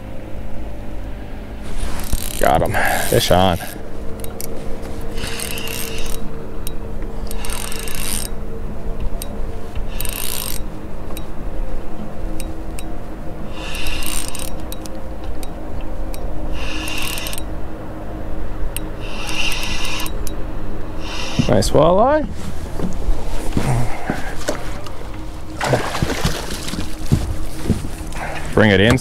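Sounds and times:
steady low hum: 0:00.0 - 0:29.0
fishing reel drag rasping: 0:01.7 - 0:08.4, 0:09.2 - 0:10.7, 0:13.5 - 0:14.9, 0:16.5 - 0:17.5, 0:18.8 - 0:20.4, 0:21.0 - 0:21.7
reel ticking: 0:05.2 - 0:08.4, 0:09.1 - 0:11.3, 0:13.5 - 0:17.5, 0:18.7 - 0:20.4.

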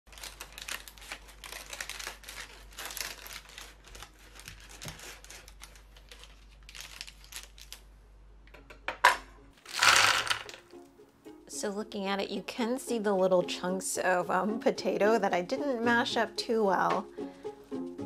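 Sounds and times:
parchment paper crinkling: 0:00.1 - 0:07.9.

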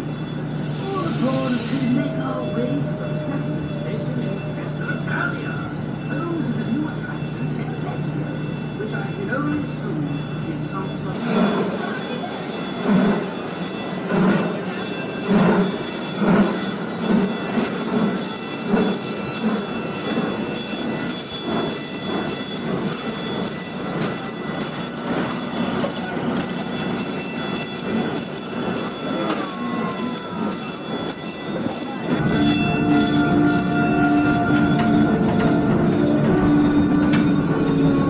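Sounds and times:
steam train chugging: 0:00.0 - 0:38.0
held chord of steady tones: 0:00.7 - 0:11.1.

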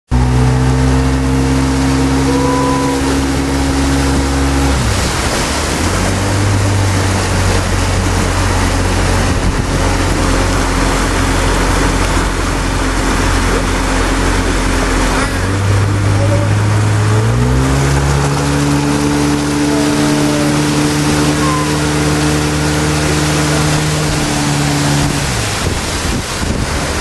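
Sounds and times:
boat motor running: 0:00.1 - 0:27.0
wind and water rushing: 0:00.1 - 0:27.0.

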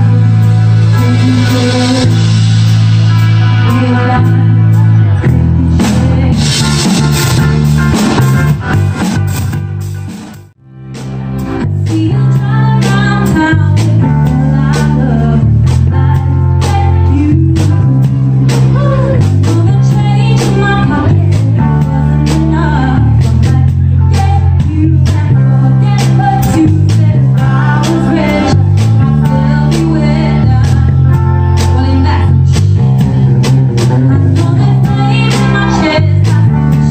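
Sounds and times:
person singing: 0:00.0 - 0:02.4, 0:11.8 - 0:36.9
bass guitar: 0:00.0 - 0:36.9
drums: 0:00.0 - 0:36.9
guitar: 0:00.0 - 0:36.9.

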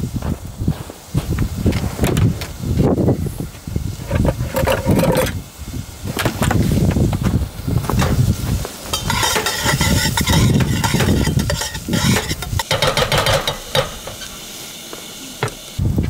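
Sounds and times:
food sizzling: 0:00.0 - 0:16.0
metal spoon scraping steel pot: 0:04.1 - 0:05.4, 0:08.9 - 0:14.4.

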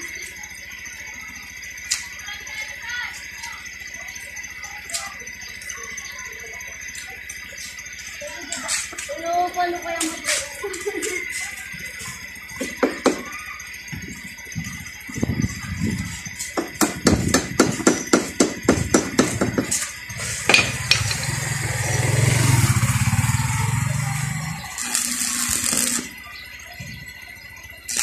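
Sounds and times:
welding arc crackling: 0:00.0 - 0:28.0
electrode tapping on metal: 0:12.0 - 0:15.6, 0:16.2 - 0:21.5.

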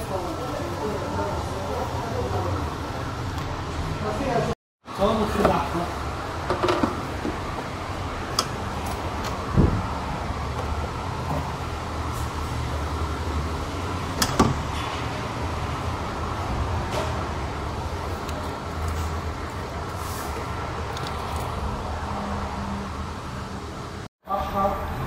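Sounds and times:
parts clicking and knocking: 0:06.4 - 0:07.4.

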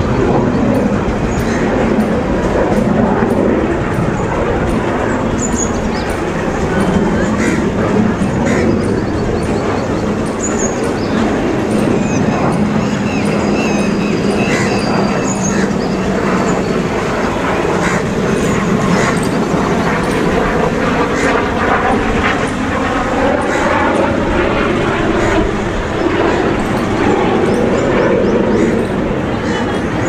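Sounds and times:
rail and train noise: 0:00.0 - 0:16.5, 0:23.7 - 0:30.0.

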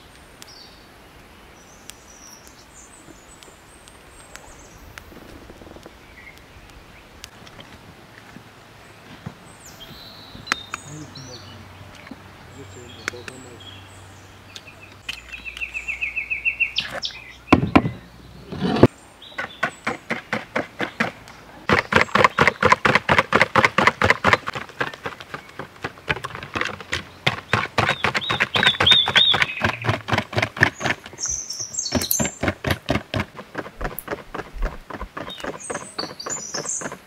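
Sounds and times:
small birds chirping: 0:00.0 - 0:22.9, 0:23.6 - 0:37.0
heavy thumps: 0:17.5 - 0:18.9.

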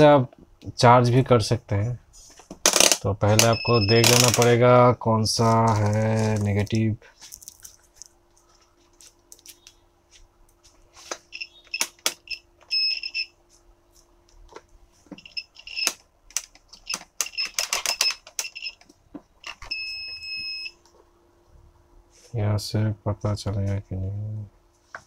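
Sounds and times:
high-pitched electronic beeps: 0:03.4 - 0:04.3.

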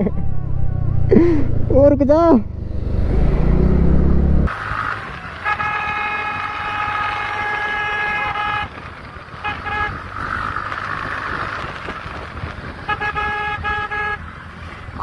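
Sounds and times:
motorcycle rumbling: 0:00.0 - 0:15.0
vehicle horn honking: 0:05.4 - 0:08.8, 0:09.4 - 0:10.1, 0:12.8 - 0:14.3.

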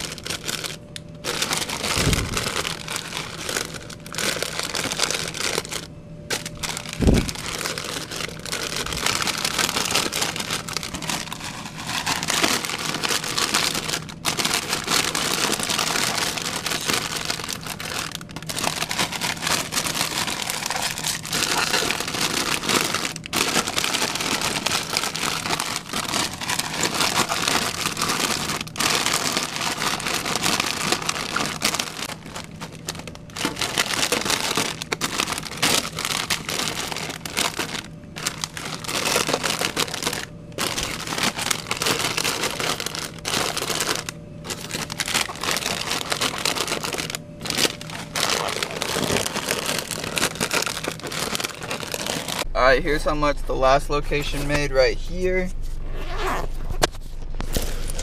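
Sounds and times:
plastic chip bags crinkling: 0:00.0 - 0:55.3, 0:56.0 - 0:58.0
low steady hum: 0:00.0 - 0:58.0.

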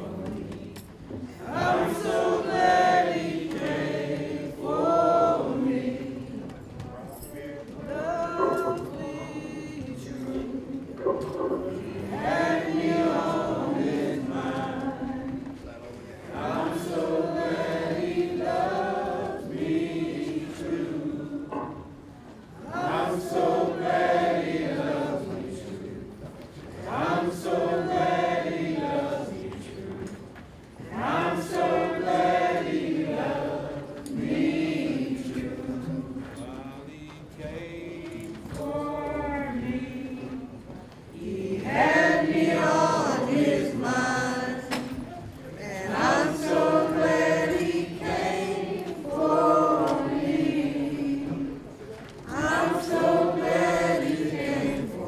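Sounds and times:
congregation singing: 0:00.0 - 0:55.0.

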